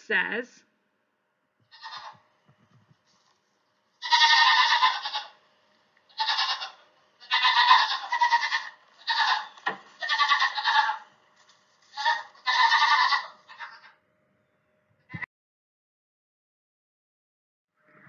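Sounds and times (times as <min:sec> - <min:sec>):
baby goat bleating: 0:01.6 - 0:02.2, 0:04.0 - 0:05.4, 0:06.1 - 0:11.0, 0:11.8 - 0:14.0.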